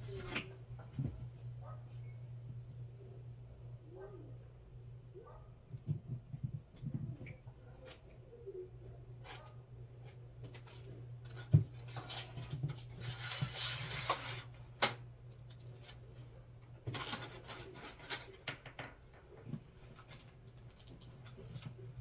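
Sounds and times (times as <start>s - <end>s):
steady low hum: 0.0s - 22.0s
hands clicking and rustling: 16.8s - 22.0s.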